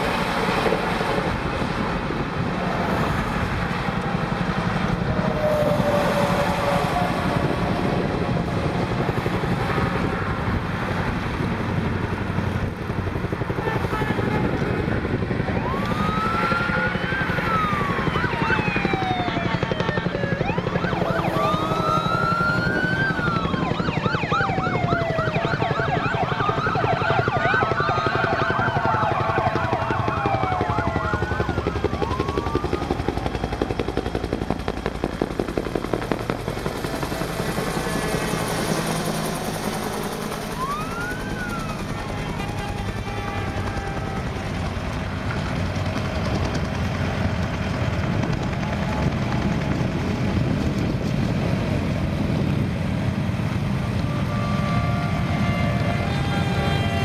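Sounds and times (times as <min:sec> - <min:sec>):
passing cars and trucks: 0:00.0 - 0:57.0
police sirens wailing and yelping: 0:03.9 - 0:10.1, 0:13.3 - 0:34.5, 0:36.5 - 0:50.0, 0:53.7 - 0:57.0.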